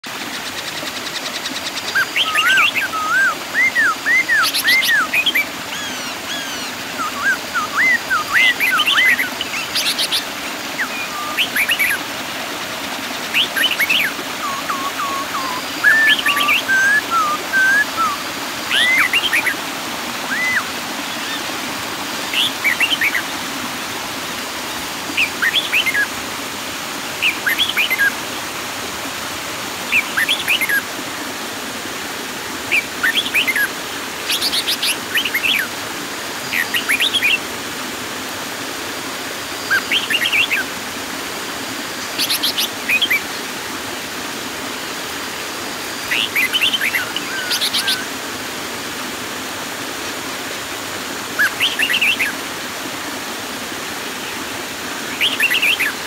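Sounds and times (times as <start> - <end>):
waterfall pouring into pool: 0.1 - 56.0
bird chirping: 13.3 - 19.6.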